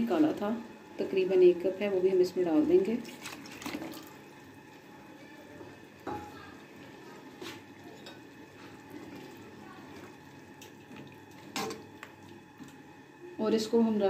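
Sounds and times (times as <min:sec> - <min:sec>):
liquid sloshing: 0:03.0 - 0:04.3, 0:06.7 - 0:12.9.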